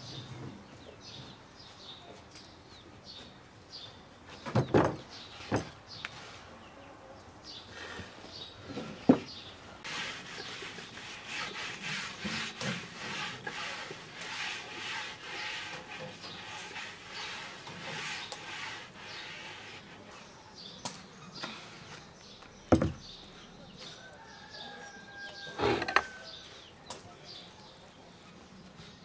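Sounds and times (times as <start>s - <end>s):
hands rubbing wooden board: 9.8s - 20.2s.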